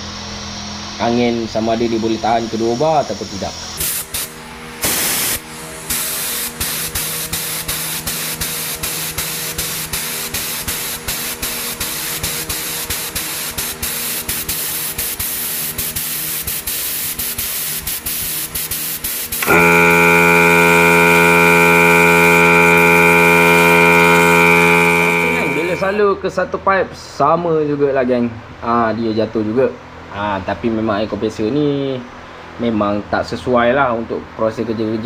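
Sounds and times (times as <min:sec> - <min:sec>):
compressed air hissing from spray gun: 0:03.8 - 0:25.2
compressor pump motor humming: 0:19.2 - 0:26.0.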